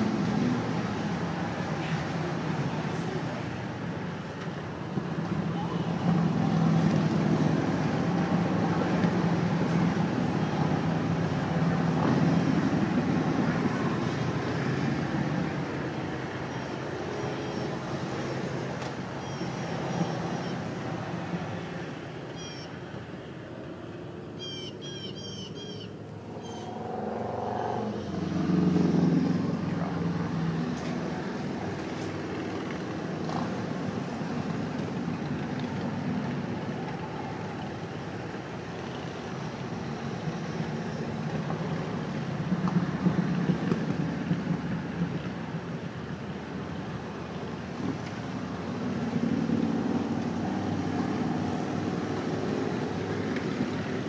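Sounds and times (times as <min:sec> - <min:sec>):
birds chirping: 0:24.4 - 0:26.9
pickup truck passing: 0:25.6 - 0:54.0
motorcycles riding past: 0:26.2 - 0:38.0.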